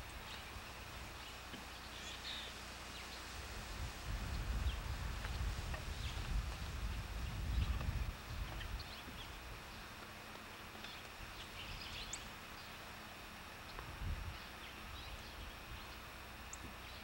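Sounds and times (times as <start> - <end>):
low uneven rumble: 0.0 - 17.0
bird chirps: 10.8 - 12.8.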